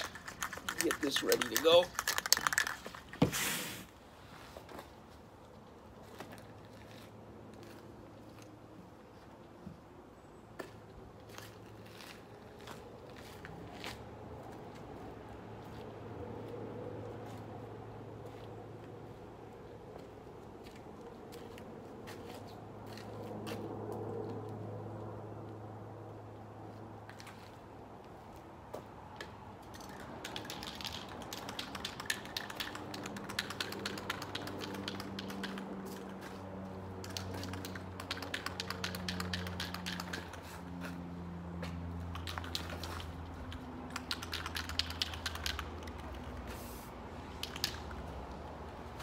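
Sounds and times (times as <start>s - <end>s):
spray can mixing ball rattling: 0.0s - 3.5s.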